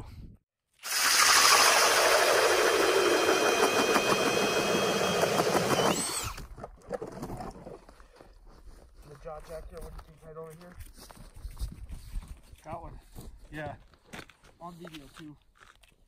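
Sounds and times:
drill motor whine: 0:00.8 - 0:06.5
auger bit grinding ice: 0:00.8 - 0:07.7.

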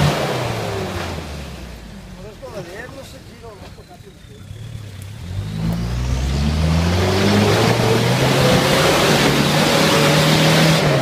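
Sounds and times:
diesel engine at high revs: 0:00.0 - 0:02.1, 0:03.7 - 0:11.0.

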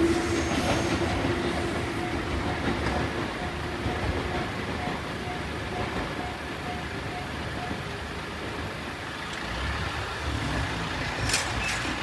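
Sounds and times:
vehicle engine rumble: 0:05.8 - 0:12.0.

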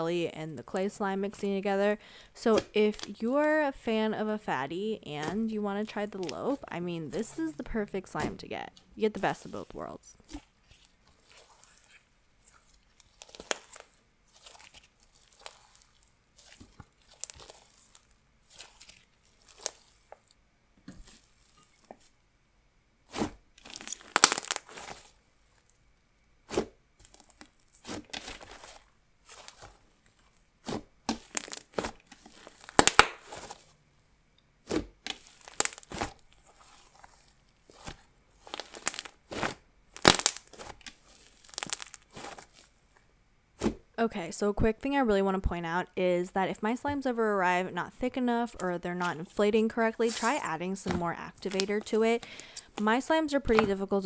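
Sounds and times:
slime squishing and tearing: 0:10.2 - 0:20.1, 0:23.1 - 0:25.2, 0:26.5 - 0:33.7, 0:34.6 - 0:42.8.

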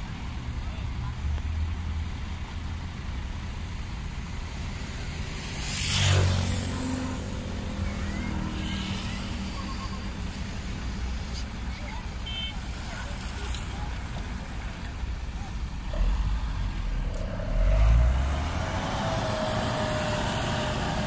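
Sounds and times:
diesel truck engine running: 0:06.5 - 0:21.0.

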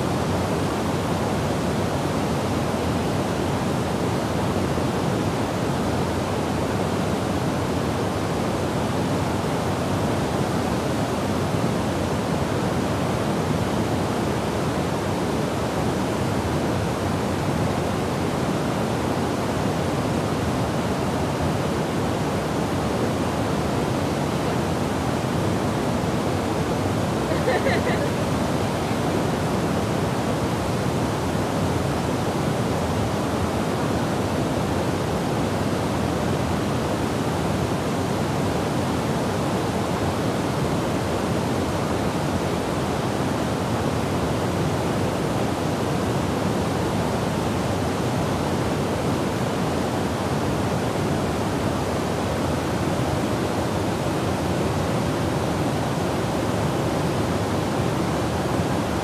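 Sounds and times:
waterfall rushing into pool: 0:00.0 - 0:59.0.

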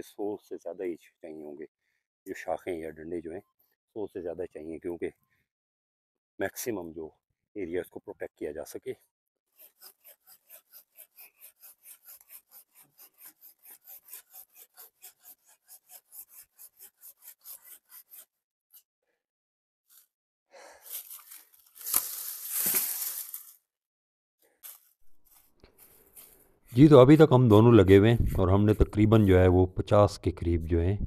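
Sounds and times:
hand saw cutting branch: 0:09.5 - 0:18.9, 0:20.8 - 0:23.6, 0:24.6 - 0:29.6
branch cracking: 0:20.9 - 0:23.6.

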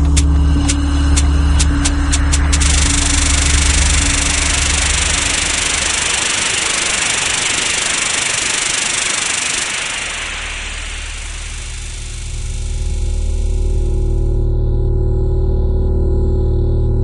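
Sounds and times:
low hum: 0:00.0 - 0:17.0
static-like hiss: 0:02.5 - 0:13.3.

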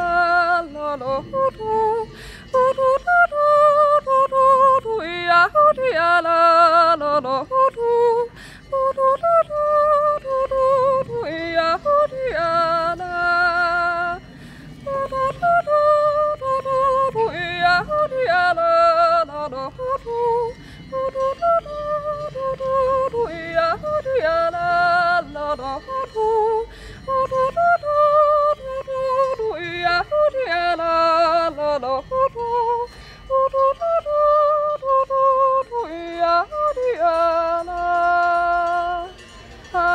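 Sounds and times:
breaths: 0:02.1 - 0:02.6, 0:08.3 - 0:08.7, 0:14.3 - 0:14.8, 0:20.6 - 0:20.9, 0:26.7 - 0:27.1, 0:32.9 - 0:33.3.

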